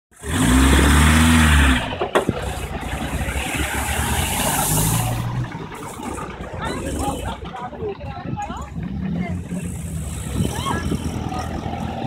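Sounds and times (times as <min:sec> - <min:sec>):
engine revving: 0:00.1 - 0:07.6, 0:08.6 - 0:12.0
wheels splashing water: 0:00.4 - 0:12.0.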